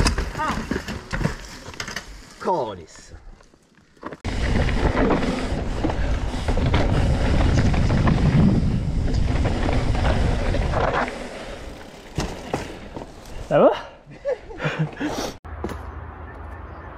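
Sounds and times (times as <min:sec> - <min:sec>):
bike knocking over bumps: 0:00.0 - 0:02.3, 0:04.1 - 0:13.4
bike tyres rumbling over dirt: 0:00.0 - 0:02.6, 0:03.4 - 0:13.7
wind buffeting microphone: 0:04.3 - 0:10.9.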